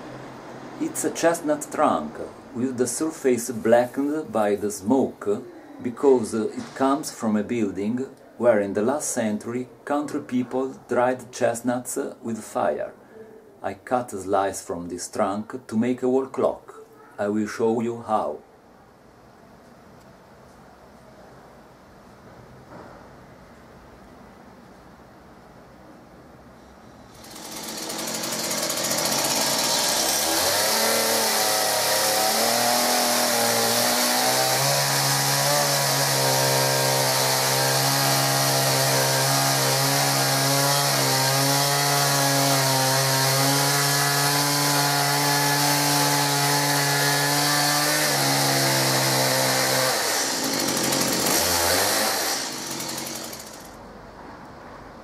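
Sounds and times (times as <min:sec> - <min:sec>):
chainsaw cutting wood: 0:27.1 - 0:53.8.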